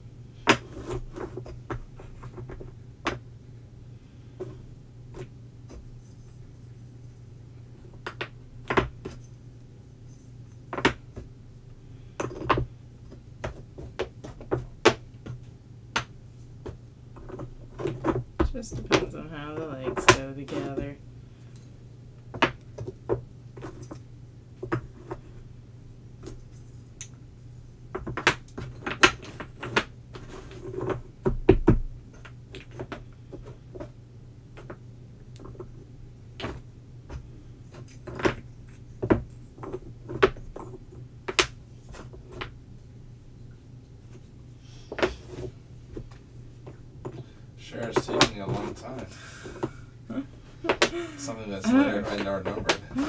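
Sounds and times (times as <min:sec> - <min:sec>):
steady low hum: 0:00.0 - 0:53.0
wooden puzzle pieces knocking: 0:07.9 - 0:09.3, 0:10.7 - 0:11.3, 0:12.2 - 0:20.9, 0:22.3 - 0:24.0, 0:24.6 - 0:25.2, 0:27.9 - 0:35.8, 0:36.4 - 0:42.6, 0:47.9 - 0:48.4, 0:50.6 - 0:51.0.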